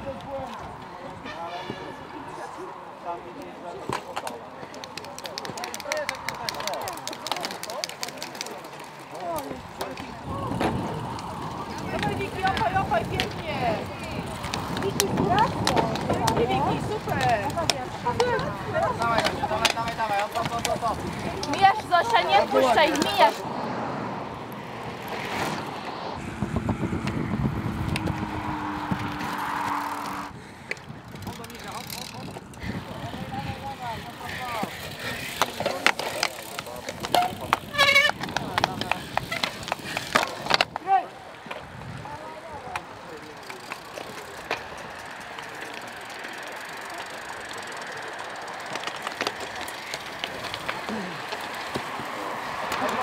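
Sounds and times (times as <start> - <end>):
bike rattling over bumps: 3.8 - 23.4, 25.0 - 53.0
wind on microphone: 10.1 - 19.6, 25.6 - 31.4, 41.5 - 42.3.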